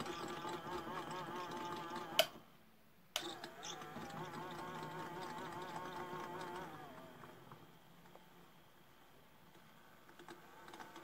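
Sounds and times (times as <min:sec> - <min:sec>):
toy washing machine motor whirring: 0:00.0 - 0:02.4, 0:03.2 - 0:07.6, 0:10.0 - 0:11.0.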